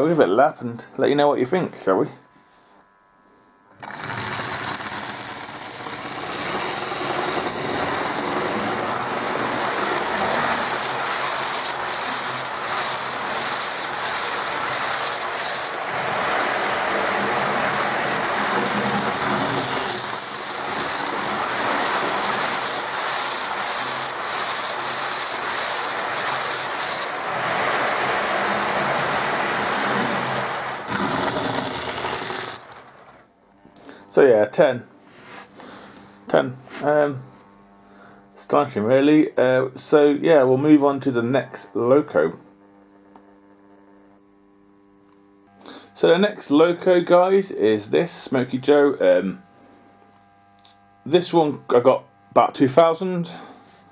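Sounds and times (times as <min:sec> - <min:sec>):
model train running on track: 0:03.8 - 0:33.2.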